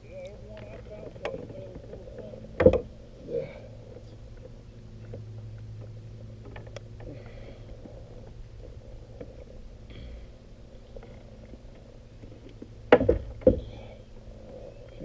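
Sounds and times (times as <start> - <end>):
faint handling noises: 0.1 - 3.0.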